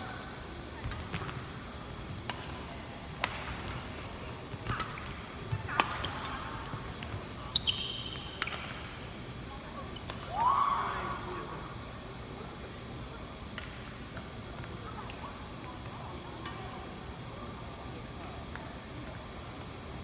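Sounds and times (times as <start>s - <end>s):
racket striking shuttlecock: 3.2s - 3.7s, 5.7s - 6.1s
shoe squeak: 7.5s - 8.2s.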